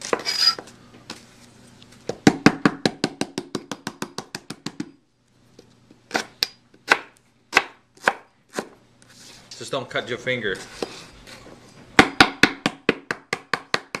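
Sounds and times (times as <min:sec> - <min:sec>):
knife chopping on plastic board: 0:02.2 - 0:05.0, 0:06.1 - 0:08.8, 0:12.0 - 0:14.0.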